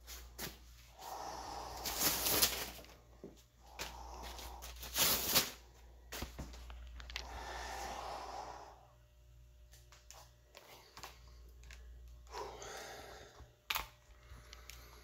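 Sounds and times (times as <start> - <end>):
plastic shoe covers rustling: 1.8 - 3.0, 4.3 - 5.6.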